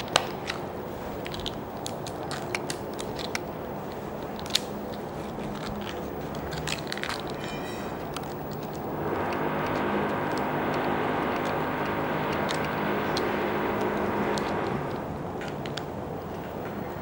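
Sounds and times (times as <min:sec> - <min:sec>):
background noise: 0:00.0 - 0:17.0
puppy gnawing chew bone: 0:01.2 - 0:08.9.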